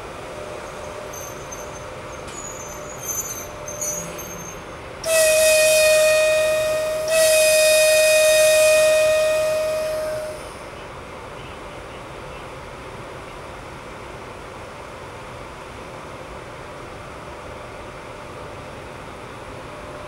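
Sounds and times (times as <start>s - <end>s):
locomotive horn blast: 5.0s - 11.6s.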